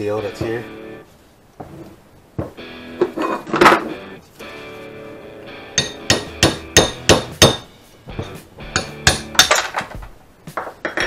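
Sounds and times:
hammer striking metal: 0:05.8 - 0:09.7.

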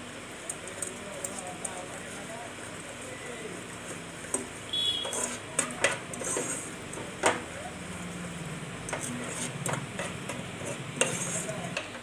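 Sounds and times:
metal spoon scraping saucepan: 0:05.0 - 0:06.8, 0:08.9 - 0:11.8.

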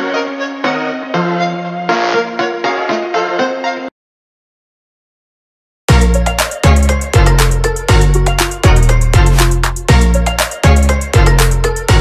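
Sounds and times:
loud music with sliding bass: 0:05.9 - 0:12.0
sharp percussion: 0:05.9 - 0:12.0.

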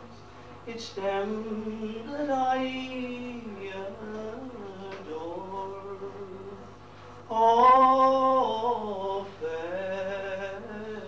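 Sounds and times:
man singing unaccompanied: 0:00.0 - 0:06.7, 0:07.3 - 0:11.0.

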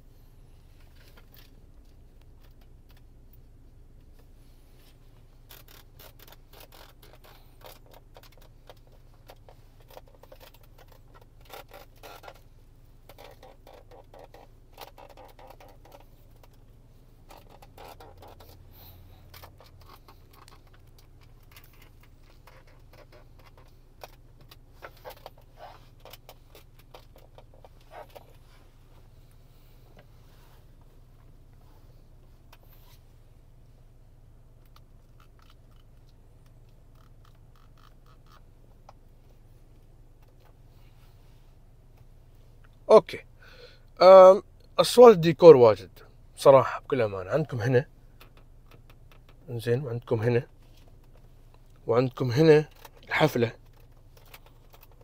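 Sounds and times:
low road rumble: 0:00.0 - 0:55.0
plastic trim creaking and clicking: 0:05.5 - 0:16.6, 0:17.2 - 0:28.4, 0:52.7 - 0:55.0.

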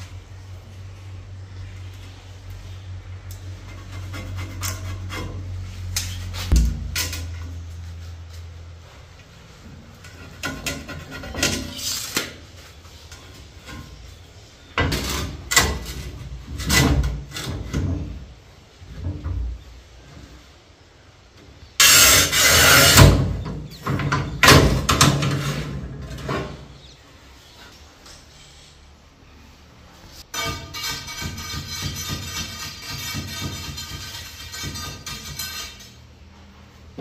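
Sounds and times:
steady low hum: 0:00.0 - 0:11.3.

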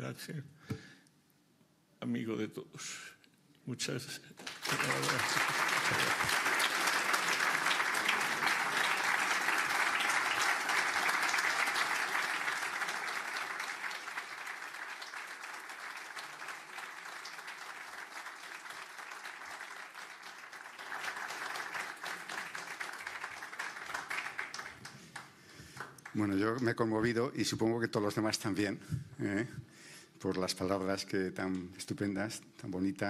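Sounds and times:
audience applauding: 0:04.4 - 0:26.8.

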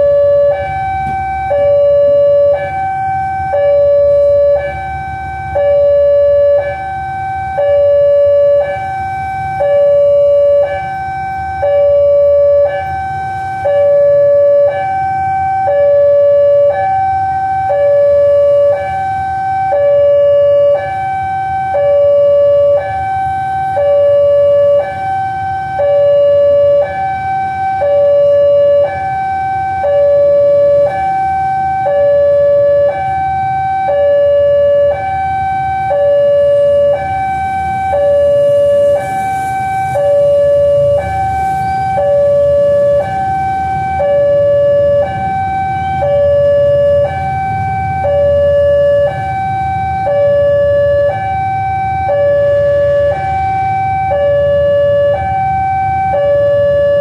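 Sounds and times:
two-tone level crossing alarm: 0:00.0 - 0:57.0.

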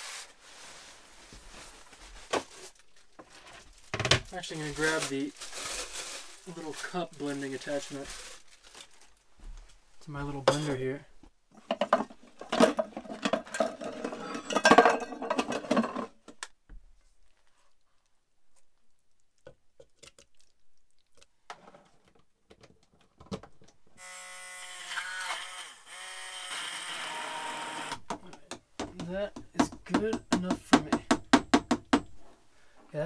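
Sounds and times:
pots and pans clattering in drawer: 0:11.6 - 0:16.2
electric stick blender running: 0:24.0 - 0:28.0.

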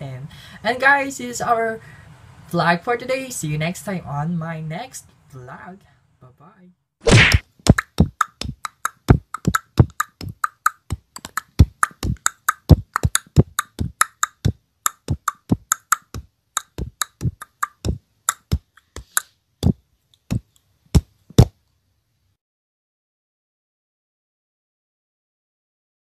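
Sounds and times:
beatboxing: 0:07.3 - 0:21.6.

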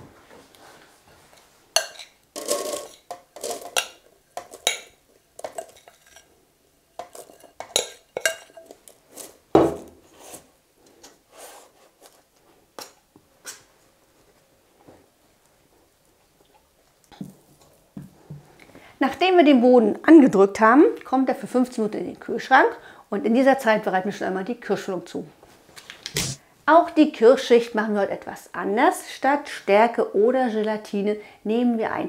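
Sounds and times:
metal spoon scraping glass bowl: 0:01.8 - 0:06.3.

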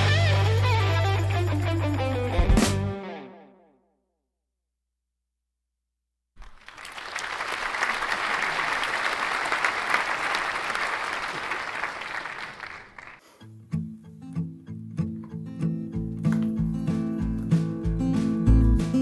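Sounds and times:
crowd applause: 0:06.4 - 0:13.2.

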